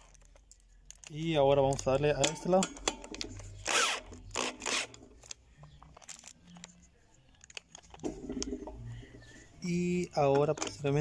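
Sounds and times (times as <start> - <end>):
faint clicks of parts handled: 0.0 - 3.4, 5.2 - 8.6
cordless drill running: 3.6 - 5.0.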